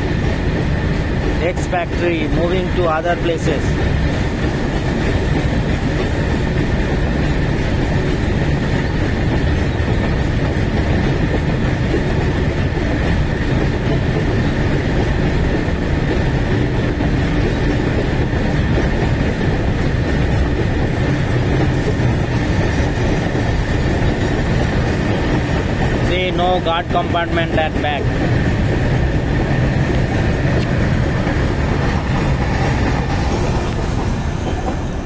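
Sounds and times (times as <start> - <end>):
freight train wheels rumbling: 0.0 - 35.0.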